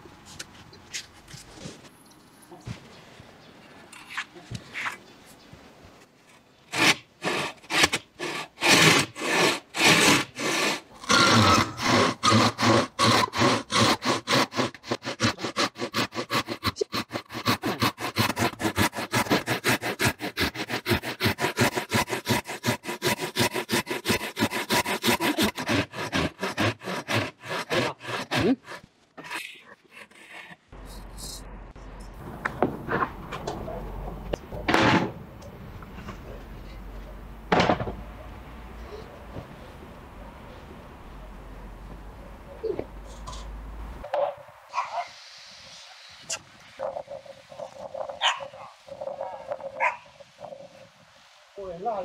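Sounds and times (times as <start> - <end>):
handsaw rasping through wood: 6.7 - 30.6.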